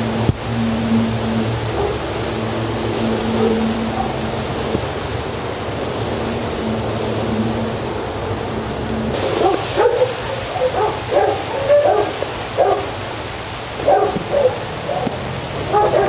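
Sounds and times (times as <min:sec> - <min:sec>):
steady hiss: 0:00.0 - 0:16.0
dog yipping: 0:01.7 - 0:02.0, 0:03.3 - 0:04.3, 0:09.2 - 0:12.9, 0:13.8 - 0:16.0.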